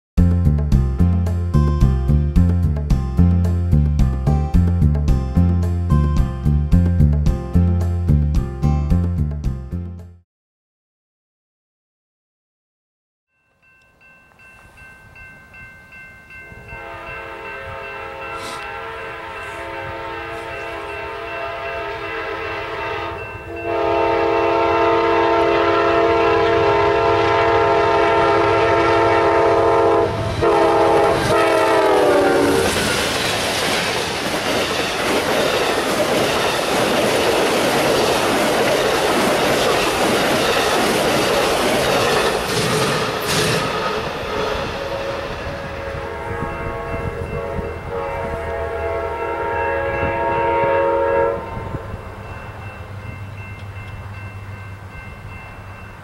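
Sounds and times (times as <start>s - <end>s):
train cars rushing past: 14.4s - 56.0s
train horn: 16.6s - 33.2s, 44.4s - 52.2s
train wheels clacking on rails: 30.2s - 45.8s.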